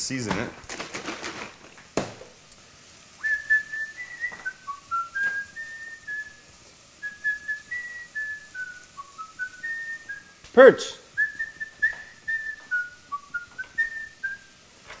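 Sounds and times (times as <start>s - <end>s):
man whistling a tune: 3.2s - 10.4s, 11.2s - 14.6s.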